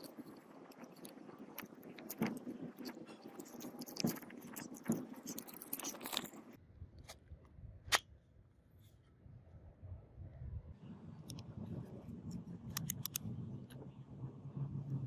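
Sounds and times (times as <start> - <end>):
rustling scrapes: 0.0 - 6.6
background noise: 0.0 - 15.0
plastic and metal parts clicking: 12.7 - 13.2.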